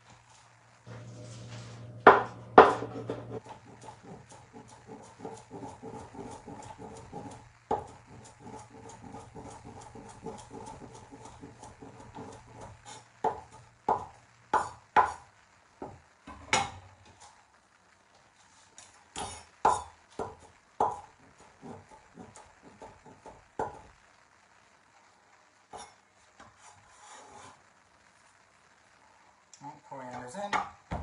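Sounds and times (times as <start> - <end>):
cleaver chopping on cutting board: 2.1 - 12.4.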